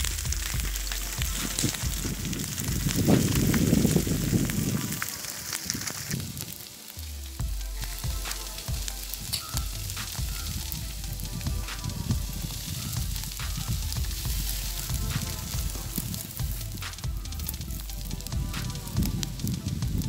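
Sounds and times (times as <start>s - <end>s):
grass fire crackling and popping: 0.0s - 20.0s
low fire rumble: 0.0s - 20.0s.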